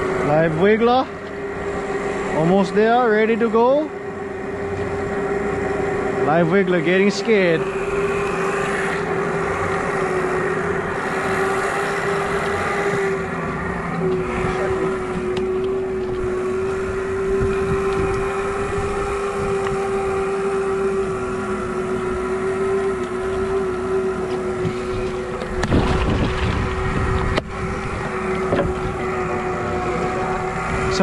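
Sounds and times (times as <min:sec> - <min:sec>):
outboard motors humming: 0:00.0 - 0:31.0
wind noise on microphone: 0:10.7 - 0:22.2, 0:24.6 - 0:31.0.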